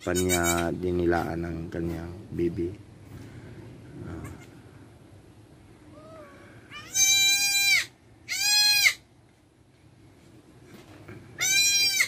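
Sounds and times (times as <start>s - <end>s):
goat bleating: 0.0s - 0.8s, 4.1s - 4.6s, 6.7s - 9.0s, 11.4s - 12.0s.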